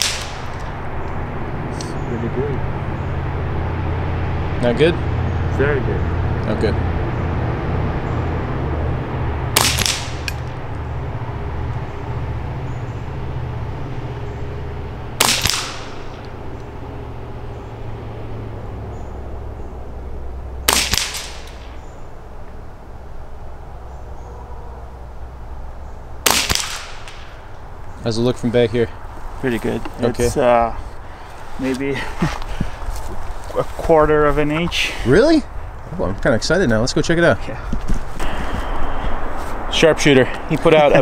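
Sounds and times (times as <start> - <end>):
rifle shots cracking: 0.0 - 0.8, 9.5 - 10.6, 15.2 - 16.4, 20.6 - 22.0, 26.2 - 27.4.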